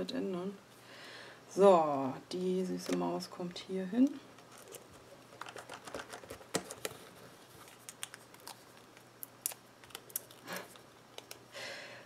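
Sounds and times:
paper rustling: 4.4s - 9.1s.

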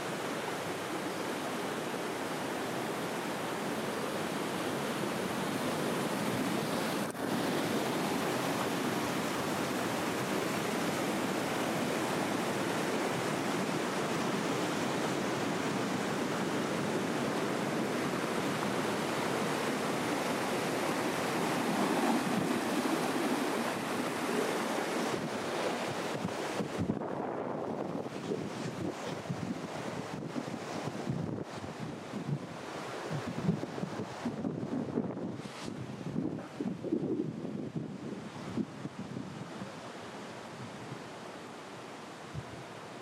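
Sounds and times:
fast-flowing water rushing: 0.0s - 43.0s.

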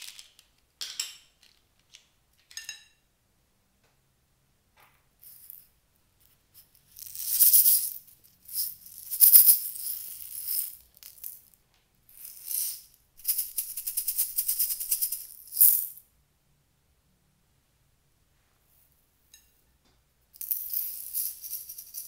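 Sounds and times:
seed beads rattling in plastic bottle: 6.6s - 11.5s, 12.1s - 16.0s, 20.4s - 22.0s.

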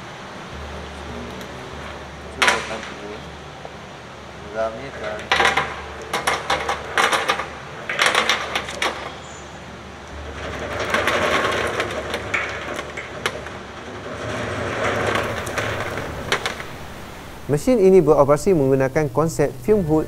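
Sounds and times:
scraping rattle: 4.6s - 19.9s
fried rings clattering down metal chute: 4.9s - 17.9s.

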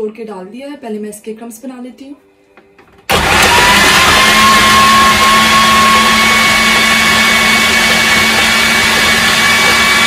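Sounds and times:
blade chopping bread: 3.1s - 10.0s
food processor whirring: 3.1s - 10.0s.

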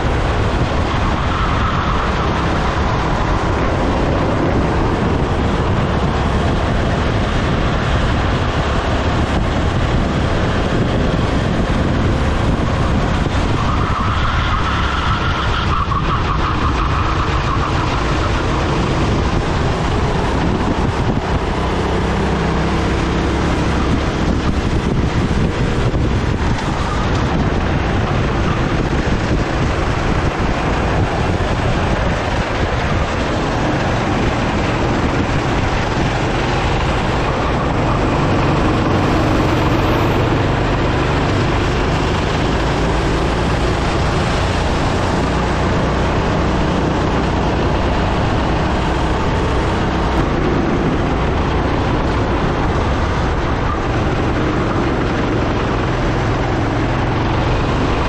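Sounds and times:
kart engine running hard: 0.0s - 58.0s
wind buffeting microphone: 0.0s - 58.0s.

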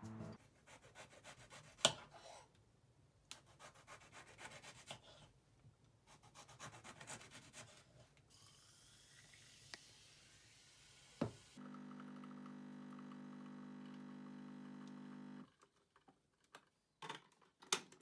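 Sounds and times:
knife sawing lemon on board: 3.5s - 5.2s.

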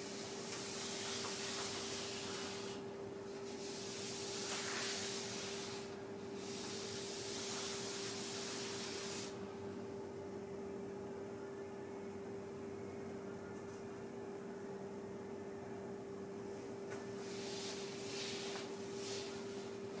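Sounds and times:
steady hum: 0.0s - 20.0s
charcoal rubbing on paper: 0.1s - 2.8s, 3.4s - 9.4s.

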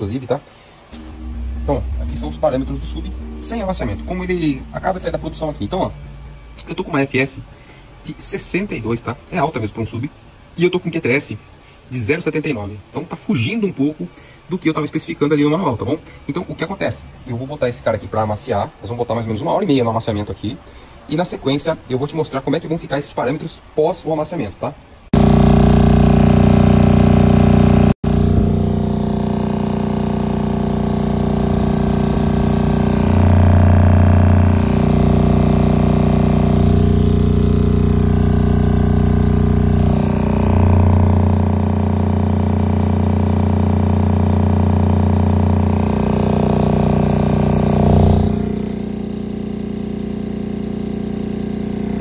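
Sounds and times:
subwoofer low test tone: 0.8s - 8.9s, 25.2s - 52.0s.

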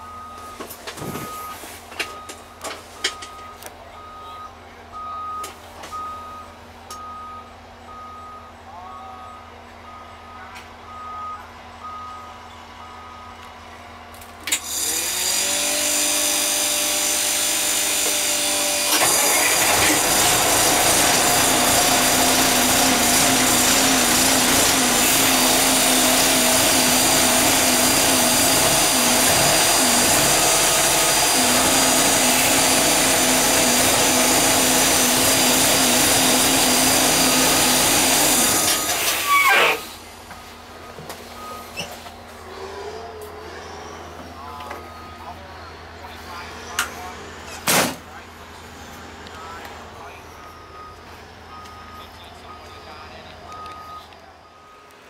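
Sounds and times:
motor whining: 14.5s - 40.0s.

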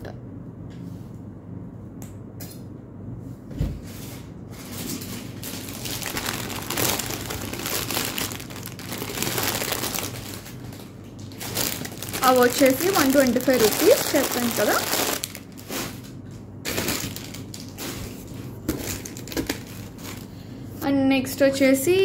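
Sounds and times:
packaging crinkling and rustling: 4.5s - 20.4s.

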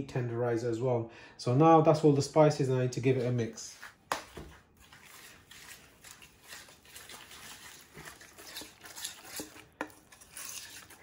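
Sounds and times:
spoon scraping bowl: 4.8s - 11.0s.

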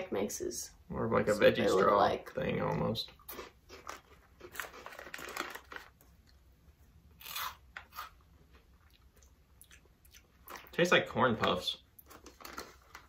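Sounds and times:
crunchy snacks being chewed: 3.2s - 6.4s, 7.2s - 8.2s, 12.0s - 13.0s.

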